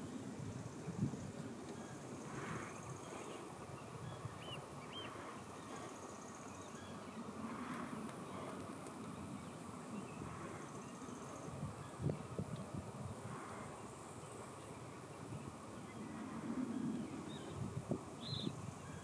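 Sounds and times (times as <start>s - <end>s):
wind rumble on microphone: 0.0s - 5.4s, 7.0s - 14.2s, 14.8s - 19.0s
small bird chirps: 18.2s - 18.6s.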